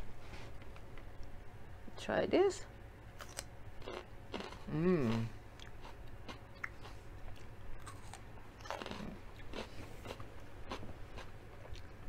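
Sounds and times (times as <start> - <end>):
chewing raw carrot crunches: 3.2 - 12.0.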